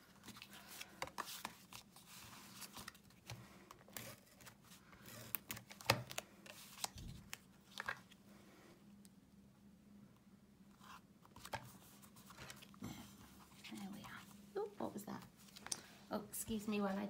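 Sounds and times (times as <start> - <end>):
card stock rustling: 0.0 - 8.2.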